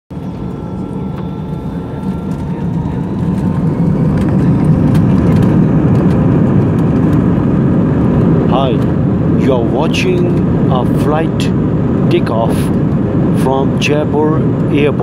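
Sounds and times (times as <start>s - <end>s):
faint high whine: 0.1s - 5.4s
jet engines rumbling in cabin: 0.1s - 15.0s.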